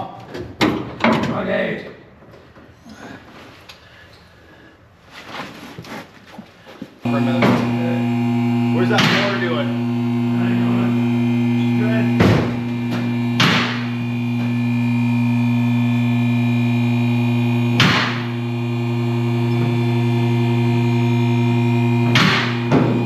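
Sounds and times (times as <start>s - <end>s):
low mechanical hum: 7.0s - 23.0s
sharp knocks: 12.2s - 13.8s, 22.1s - 23.0s.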